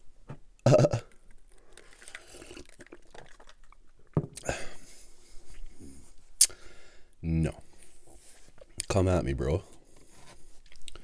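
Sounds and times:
sipping and swallowing soda: 0.7s - 4.8s.

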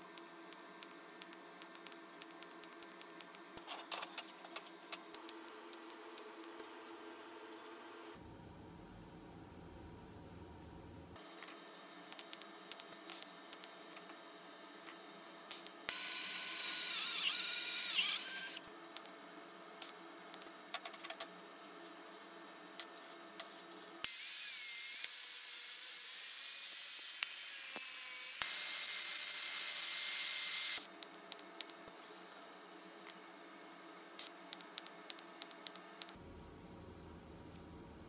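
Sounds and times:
welding arc hissing and whining: 0.0s - 3.4s, 15.5s - 19.1s, 24.0s - 31.0s.

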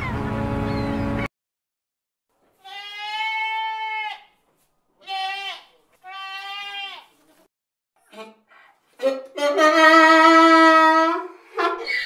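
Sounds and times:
goat bleating: 2.5s - 4.4s, 5.0s - 7.2s.

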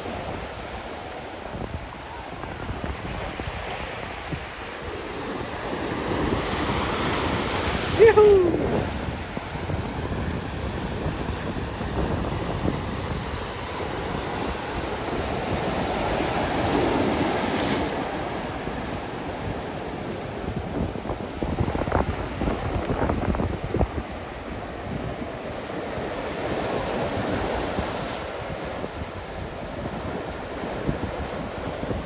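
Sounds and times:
waves breaking on shore: 0.0s - 32.0s.

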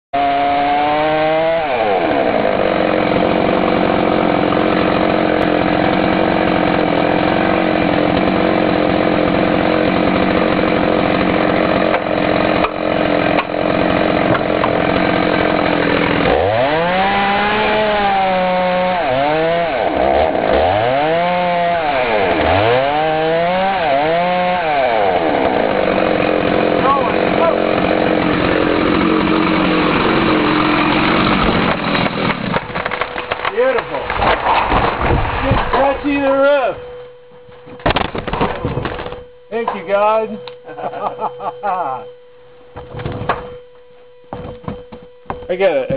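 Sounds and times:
chainsaw cutting wood: 0.2s - 36.5s.

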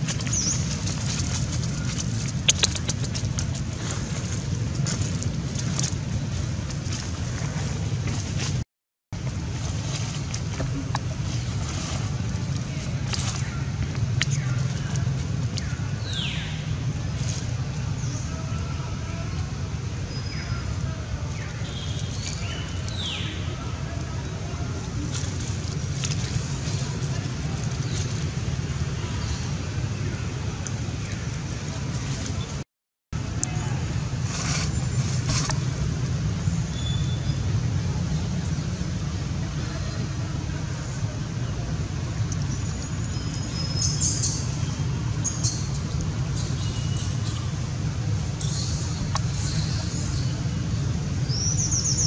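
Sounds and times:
dry leaves rustling: 0.0s - 8.6s, 9.2s - 32.6s, 33.2s - 36.8s
low outdoor rumble: 0.0s - 8.6s, 9.2s - 32.6s, 33.2s - 52.0s.

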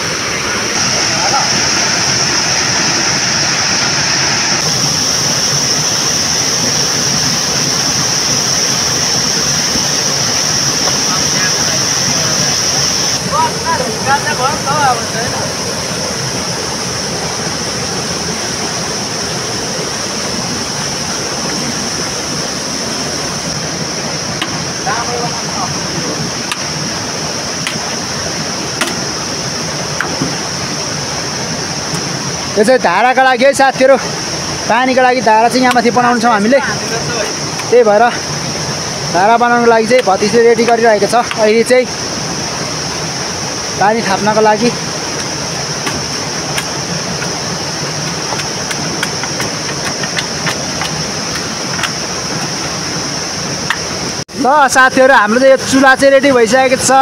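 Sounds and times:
high-pitched hiss: 0.0s - 57.0s
rushing stream water: 0.0s - 57.0s
sharp knocks: 28.8s - 29.0s, 30.0s - 30.4s.

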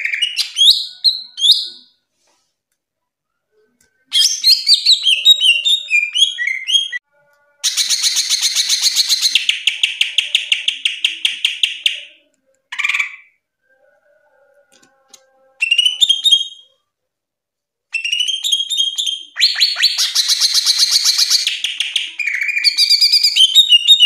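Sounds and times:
bird singing whistled notes and trills: 4.2s - 7.0s, 18.0s - 24.0s.

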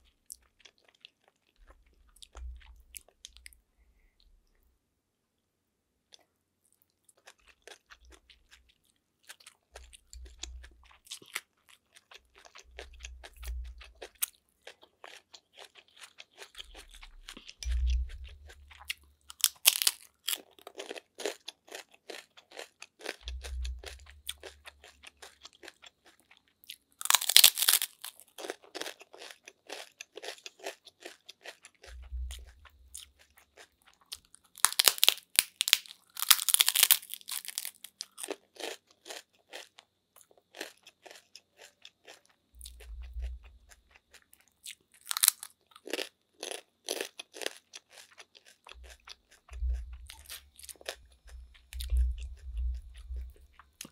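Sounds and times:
loud crunching bites: 19.3s - 23.2s, 27.0s - 31.6s, 34.6s - 39.7s, 45.0s - 49.1s
moist chewing with mouth clicks: 40.6s - 53.9s.

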